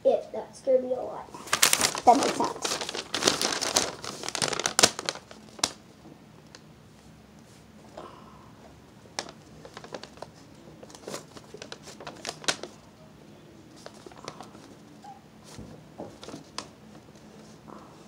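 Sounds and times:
paper crinkling and rustling: 1.4s - 5.8s, 9.2s - 12.8s, 13.7s - 17.6s.

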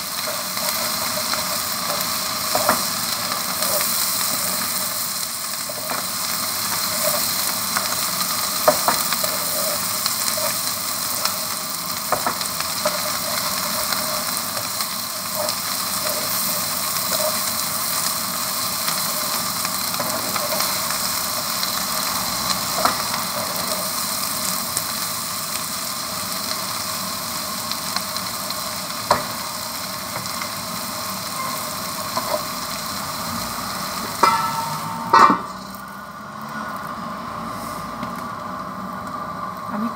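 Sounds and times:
food sizzling in a wok: 0.0s - 39.9s
wooden spatula knocking pan: 34.2s - 35.6s.

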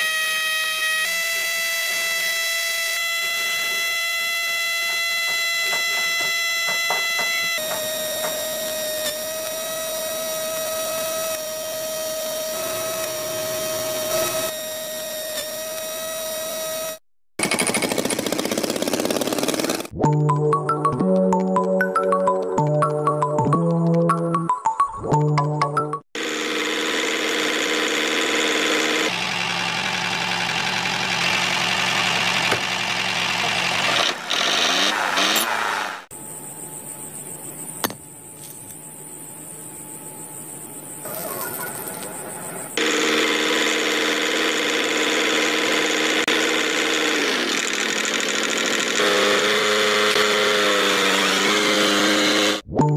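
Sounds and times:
electric motor whining: 0.0s - 17.0s, 26.2s - 36.1s, 40.9s - 52.7s.

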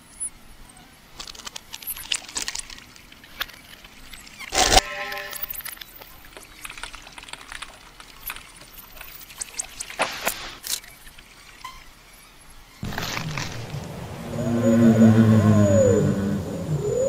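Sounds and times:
liquid dripping and trickling: 5.8s - 10.0s.

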